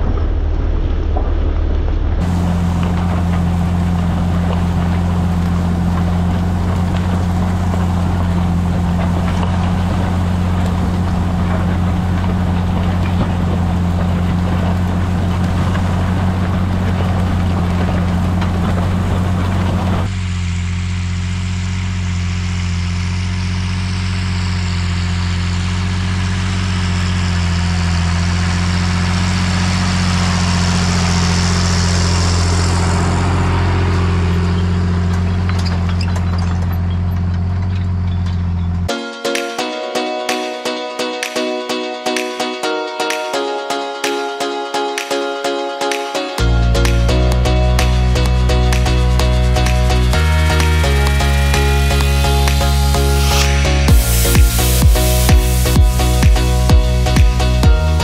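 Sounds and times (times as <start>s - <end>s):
tractor engine drone: 0.0s - 58.0s
high hiss: 49.6s - 57.1s.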